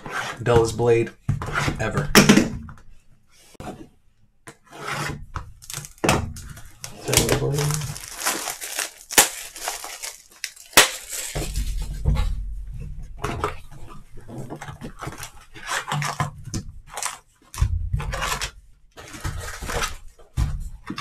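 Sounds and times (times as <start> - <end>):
plastic wrap tearing and crinkling: 5.6 - 12.0, 14.8 - 16.3, 16.9 - 20.2.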